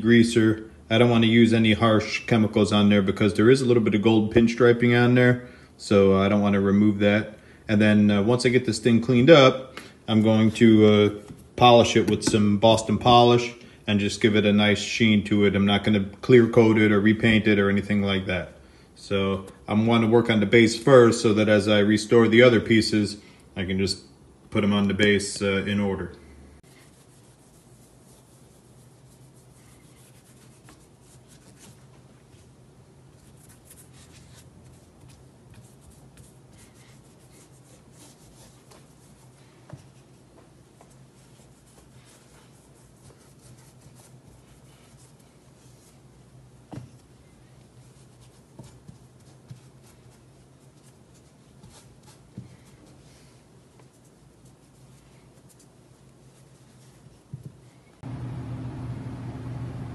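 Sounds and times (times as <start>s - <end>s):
steady low hum: 25.4s - 59.9s
cloth rubbing on metal: 26.6s - 58.1s.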